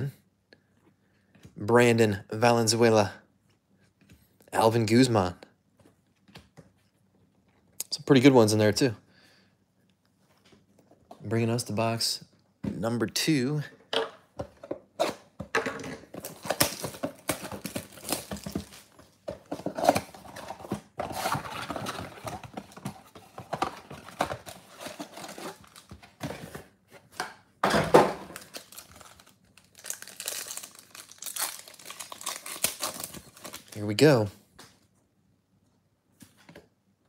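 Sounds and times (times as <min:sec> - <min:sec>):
rustles and clicks of packaging: 0:14.4 - 0:27.4, 0:28.1 - 0:35.0
cardboard crinkling and tearing: 0:16.2 - 0:26.2, 0:28.3 - 0:33.9.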